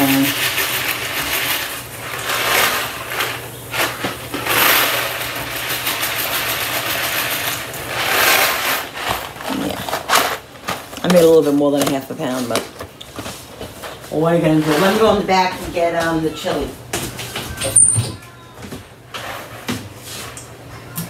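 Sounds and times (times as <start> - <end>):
dry pasta pouring and rattling: 0.0 - 10.9.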